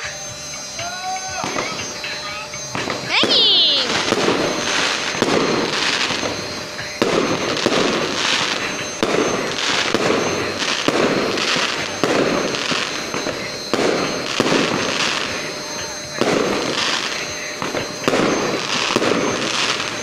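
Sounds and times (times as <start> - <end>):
hissing crackle of fireworks: 0.0 - 20.0
firework bangs: 0.8 - 20.0.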